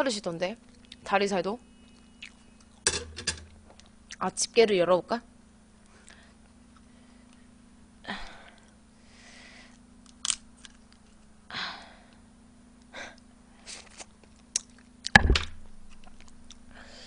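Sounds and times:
faint electrical hum: 0.0 - 17.0
short breaths: 8.1 - 9.8
sharp knock: 15.1 - 15.6.

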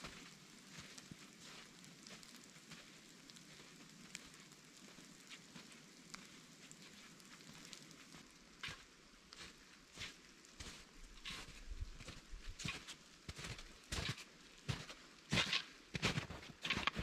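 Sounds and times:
raindrop ticks: 0.0 - 9.8
light rain hiss: 0.0 - 17.0.

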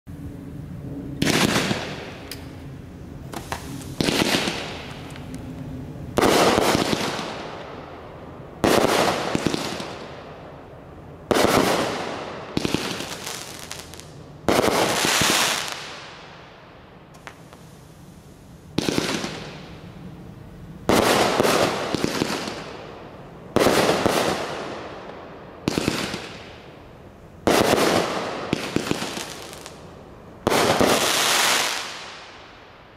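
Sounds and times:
firework bangs: 1.2 - 2.6, 3.2 - 5.1, 6.1 - 7.8, 8.6 - 10.3, 11.2 - 16.3, 18.7 - 19.8, 20.8 - 26.8, 27.4 - 32.6
small firework pops: 3.3 - 5.4, 17.1 - 17.8.

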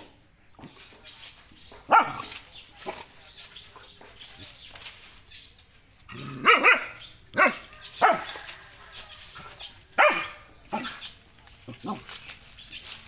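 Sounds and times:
rustling and scuffling: 0.5 - 6.4, 7.1 - 13.0
dog barking: 1.9 - 3.1, 6.2 - 8.5, 10.0 - 10.9.

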